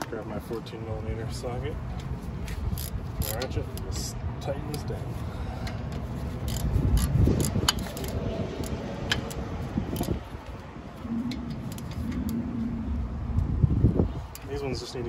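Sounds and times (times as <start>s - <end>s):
socket ratchet clicking: 2.7s - 3.9s, 5.7s - 10.3s
low rumble: 6.7s - 15.0s.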